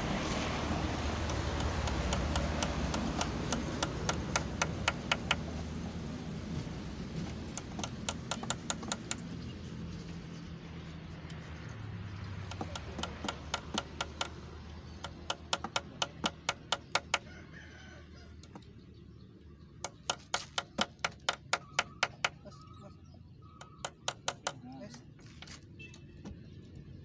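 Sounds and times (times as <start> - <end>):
hammer tapping nails: 1.2 - 5.6, 7.5 - 9.3, 12.4 - 17.3, 19.8 - 22.5, 23.6 - 24.6.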